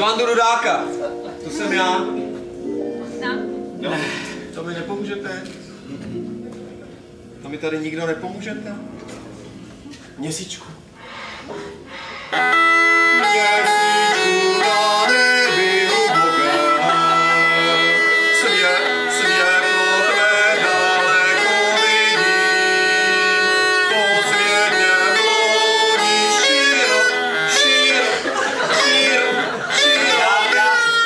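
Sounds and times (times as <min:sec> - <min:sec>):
bagpipe tune over drone: 0:12.3 - 0:28.2.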